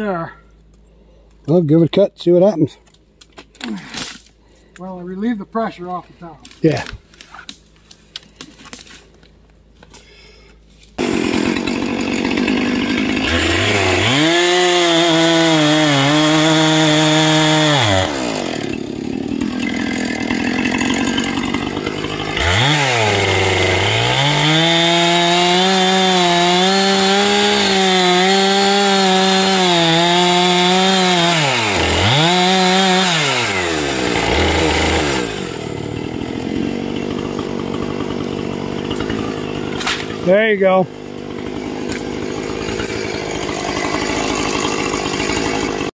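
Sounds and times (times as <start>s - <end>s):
chainsaw cutting and idling: 9.9s - 45.9s.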